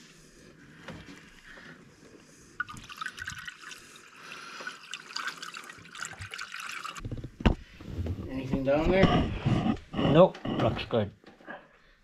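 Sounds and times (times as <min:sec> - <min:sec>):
liquid pouring from a plastic jug: 0:02.6 - 0:07.3.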